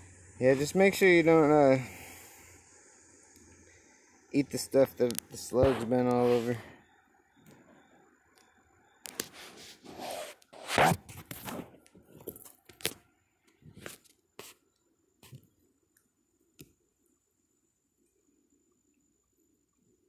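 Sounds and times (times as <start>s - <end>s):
handling rustling and scraping: 5.2s - 6.6s, 9.1s - 13.0s.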